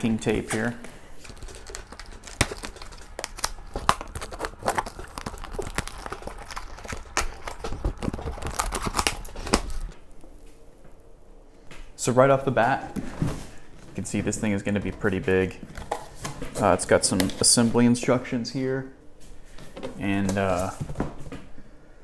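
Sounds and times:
packing tape ripping: 0:01.2 - 0:10.0.

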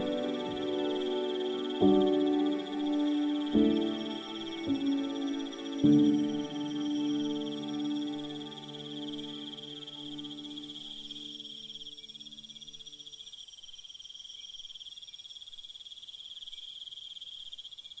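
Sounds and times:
low musical chord: 0:00.0 - 0:11.2
crickets trilling: 0:00.0 - 0:18.0.

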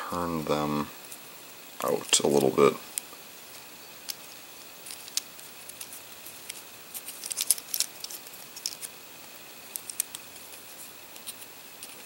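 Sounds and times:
plastic toy clicking and rubbing: 0:01.8 - 0:09.0, 0:09.6 - 0:12.0.

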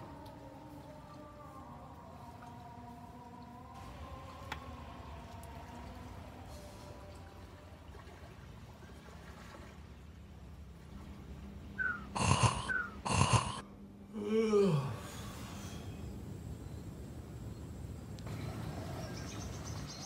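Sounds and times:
gecko calling: 0:11.8 - 0:13.6
low sigh-like voice: 0:11.8 - 0:16.1.

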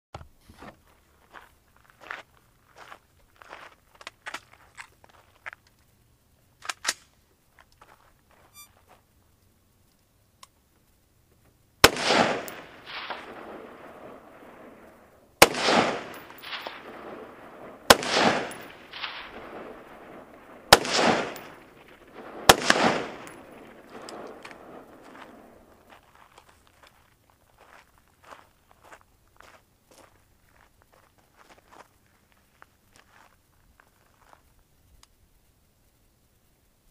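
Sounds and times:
rifle shots: 0:11.8 - 0:25.9
faint echo burst: 0:11.8 - 0:26.0.

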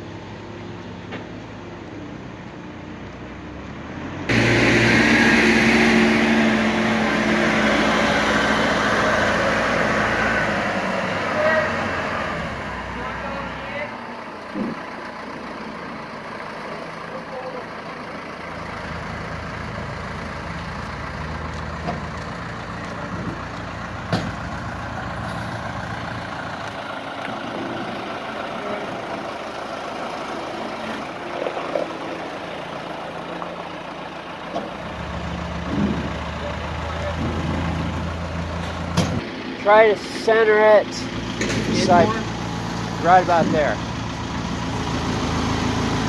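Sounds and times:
telehandler engine running: 0:00.0 - 0:46.0
tyres on gravel: 0:06.8 - 0:44.6.

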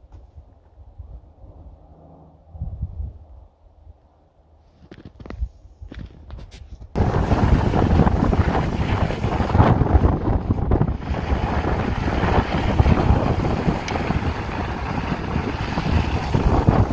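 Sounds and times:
wind buffeting microphone: 0:02.5 - 0:03.5, 0:05.2 - 0:16.9.

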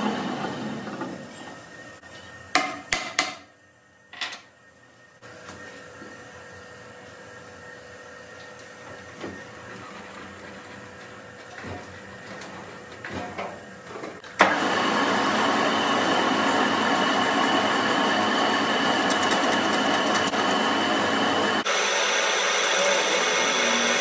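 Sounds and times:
loud machine noise: 0:14.4 - 0:24.0.

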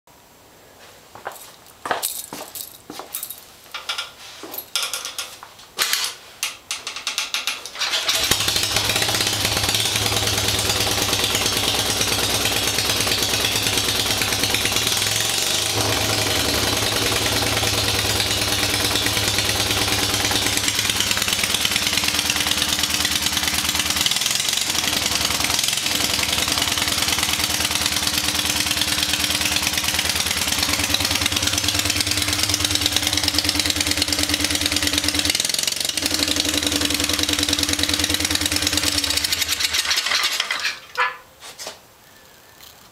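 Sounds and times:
engine clicking and clatter: 0:07.1 - 0:40.7
motorbike engine idling: 0:08.1 - 0:39.8.

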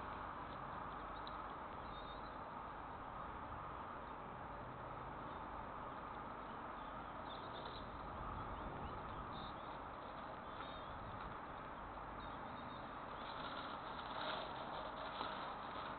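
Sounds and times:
steady outdoor hiss: 0:00.0 - 0:15.9
faint high bird chirps: 0:00.9 - 0:02.5, 0:06.4 - 0:11.1, 0:12.1 - 0:13.6.

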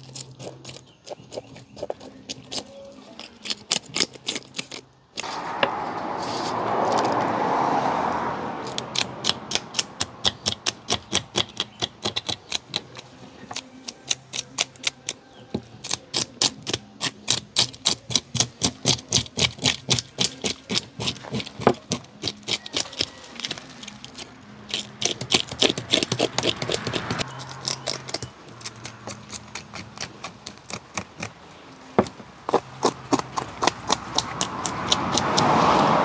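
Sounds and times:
knife scraping fish scales: 0:00.0 - 0:05.3, 0:08.7 - 0:31.4
loud rushing noise: 0:05.2 - 0:10.2.

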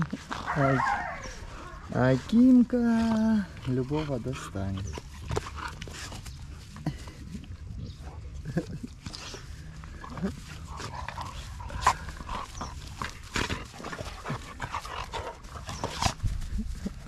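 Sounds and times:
dog vocal sounds: 0:00.0 - 0:06.0
dogs scuffling: 0:00.0 - 0:07.2, 0:09.0 - 0:17.0
dogs panting: 0:00.0 - 0:17.0.

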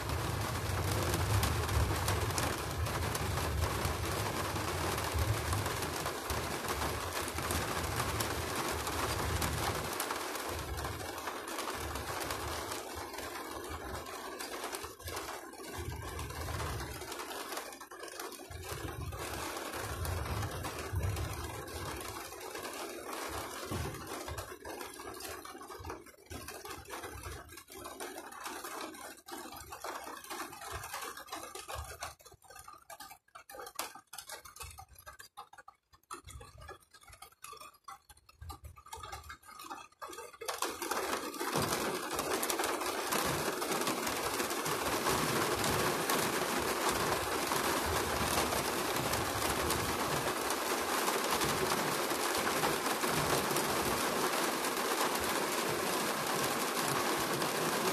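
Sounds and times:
heavy rain: 0:00.0 - 0:27.3, 0:40.4 - 0:57.9.

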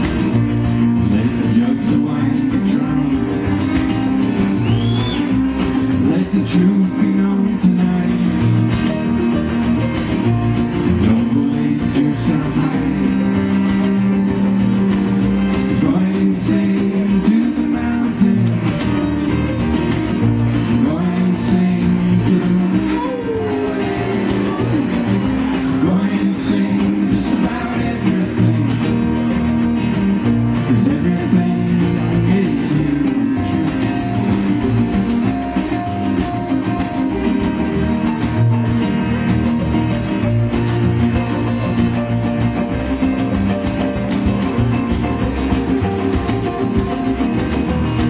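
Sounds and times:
banjo: 0:00.0 - 0:48.0
fiddle: 0:00.0 - 0:48.0
strummed acoustic guitar: 0:00.0 - 0:48.0
upright bass: 0:00.0 - 0:48.0
person singing: 0:20.7 - 0:29.4, 0:30.6 - 0:37.1.

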